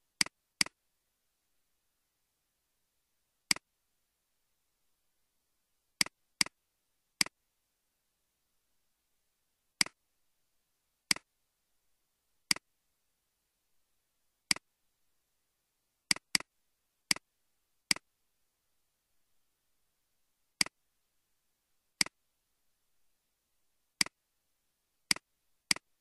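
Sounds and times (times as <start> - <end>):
computer mouse clicking: 11.1 - 11.3, 16.1 - 16.5, 25.1 - 25.9.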